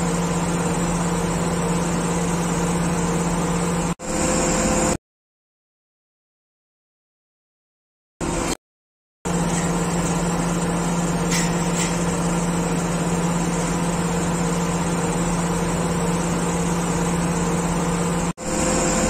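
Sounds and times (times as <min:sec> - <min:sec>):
diesel engine low hum: 0:00.0 - 0:05.0, 0:08.2 - 0:08.6, 0:09.3 - 0:19.0.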